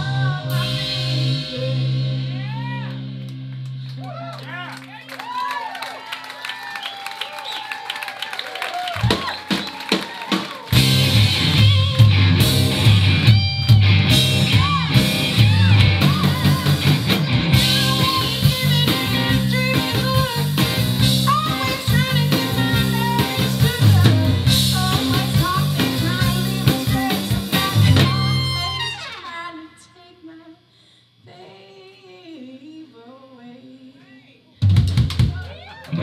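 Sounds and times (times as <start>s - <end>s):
drum kit: 0.0s - 4.0s, 8.9s - 29.0s, 34.6s - 36.0s
electric bass: 0.0s - 4.8s, 10.7s - 29.1s
electric guitar: 10.7s - 29.3s.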